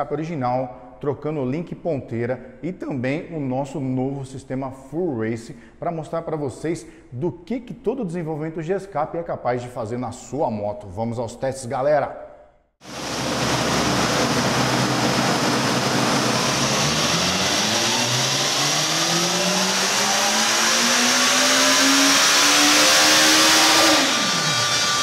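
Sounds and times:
motorcycle engine revving: 13.1 - 25.0.

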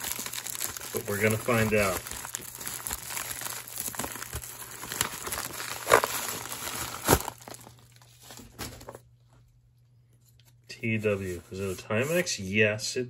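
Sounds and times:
plastic bag crinkling and tearing: 0.0 - 9.0.

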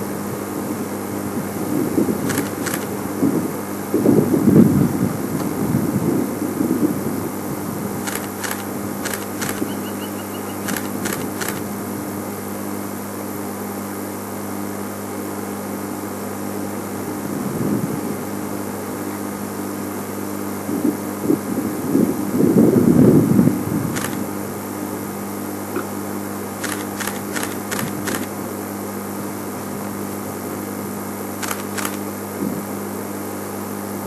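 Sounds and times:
low mechanical hum: 0.0 - 34.0
sharp clicks: 2.3 - 2.9, 8.0 - 11.7, 24.0 - 24.2, 26.6 - 28.3, 31.4 - 32.1.

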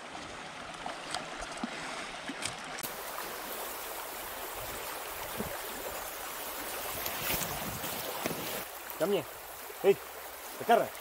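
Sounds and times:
river water rushing: 0.0 - 11.0.

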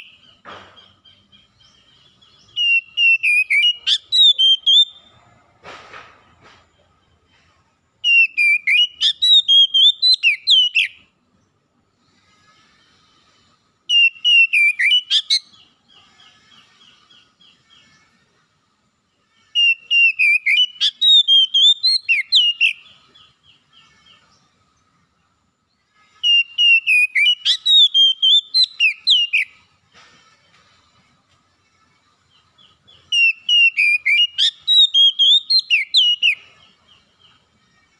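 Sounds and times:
bird whistling song phrases: 2.4 - 5.0, 8.0 - 11.0, 13.9 - 15.6, 19.6 - 22.9, 26.2 - 29.6, 32.7 - 36.5.

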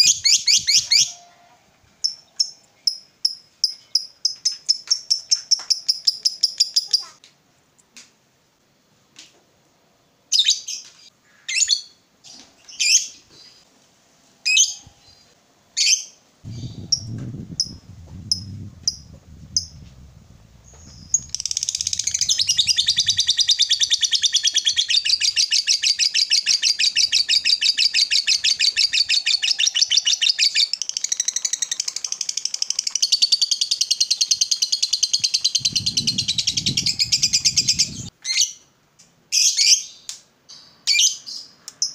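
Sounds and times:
lovebird chirping and chattering: 0.0 - 1.1, 2.0 - 7.1, 15.8 - 38.6.

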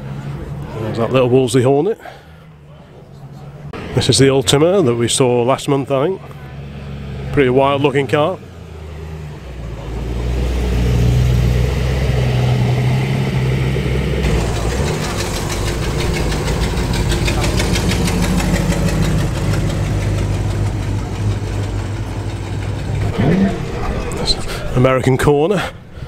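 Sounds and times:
car engine running: 6.2 - 25.9
fast even pulsing: 14.2 - 25.3.

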